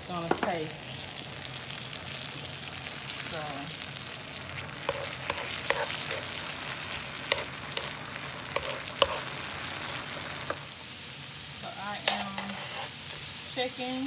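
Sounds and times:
food sizzling in oil: 0:00.0 - 0:14.0
spatula scraping griddle: 0:04.8 - 0:10.6, 0:12.0 - 0:13.6.

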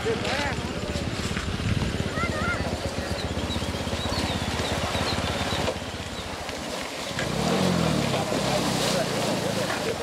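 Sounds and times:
engine chugging: 0:00.0 - 0:10.0
small birds chirping: 0:02.2 - 0:07.3.

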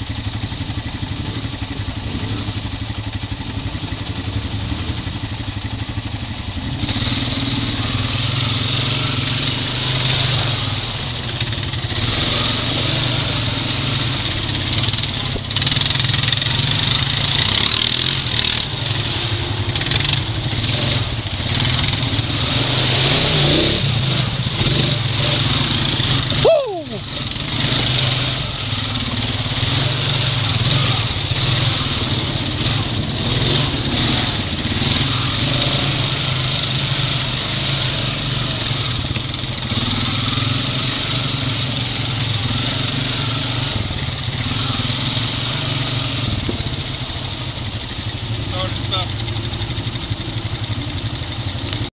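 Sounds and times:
quad bike engine running: 0:00.0 - 0:51.9.

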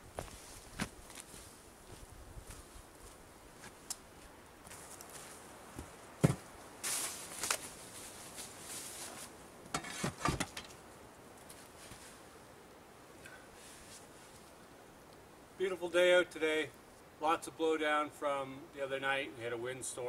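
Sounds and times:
footsteps on dry leaves: 0:00.0 - 0:09.4
jacket and backpack rustling: 0:04.7 - 0:10.3.

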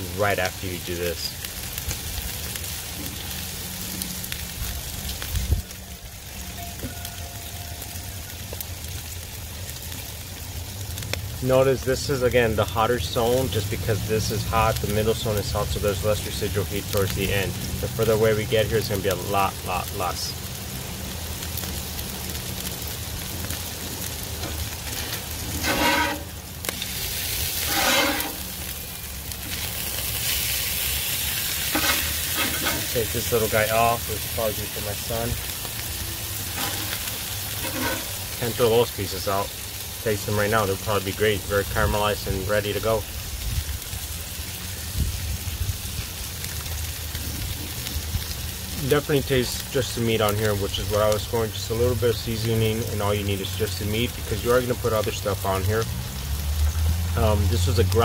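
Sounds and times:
food sizzling on a griddle: 0:00.0 - 0:58.0
metal spatula scraping griddle: 0:24.4 - 0:28.8, 0:31.2 - 0:33.2, 0:36.4 - 0:38.6.

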